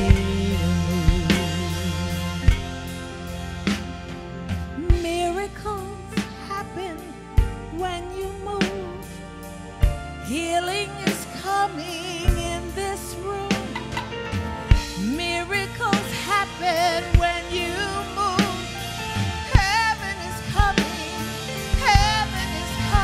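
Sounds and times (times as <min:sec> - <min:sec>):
person singing with vibrato: 0:00.0 - 0:03.4, 0:10.2 - 0:23.0
drum kit hits: 0:00.0 - 0:05.2, 0:13.5 - 0:15.2
keyboard chords: 0:00.0 - 0:23.0.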